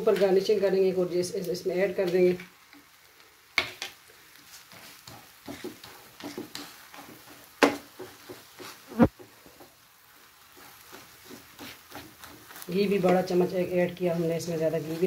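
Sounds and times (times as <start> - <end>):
wooden spoon scraping a pan: 3.6 - 15.0.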